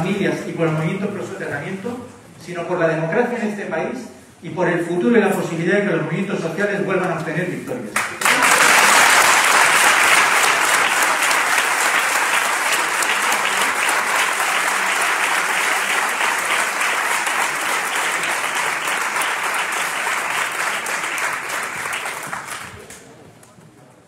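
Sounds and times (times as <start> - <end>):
large audience applauding: 8.0 - 23.2.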